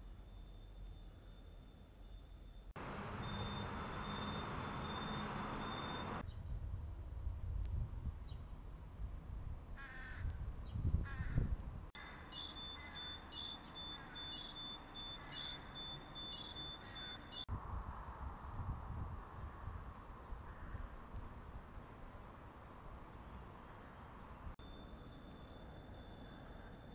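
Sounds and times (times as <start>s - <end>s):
crossing signal beeping: 0.3s - 6.2s, 12.4s - 17.5s, 24.6s - 26.9s
low street rumble: 2.8s - 6.2s
crows cawing: 9.8s - 10.3s, 11.1s - 13.2s, 13.9s - 14.4s, 15.2s - 15.7s, 16.8s - 17.3s, 20.5s - 21.0s.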